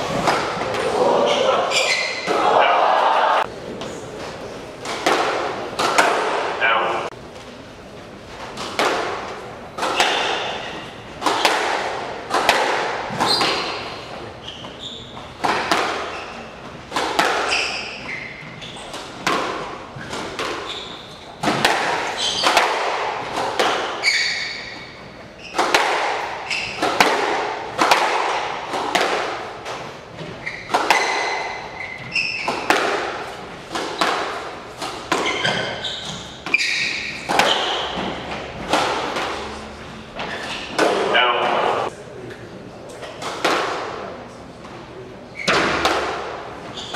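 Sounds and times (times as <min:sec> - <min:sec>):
squash ball impacts: 0:00.0 - 0:00.9, 0:04.8 - 0:06.6, 0:08.4 - 0:41.1, 0:43.0 - 0:44.2, 0:45.4 - 0:46.9
shoes squeaking on wooden floor: 0:01.2 - 0:02.3, 0:13.1 - 0:22.7, 0:23.6 - 0:27.0, 0:29.7 - 0:41.9, 0:46.6 - 0:46.9.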